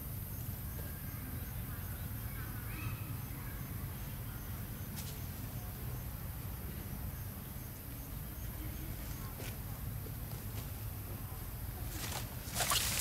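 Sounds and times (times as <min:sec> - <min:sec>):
insects chirring: 0:12.0 - 0:13.0.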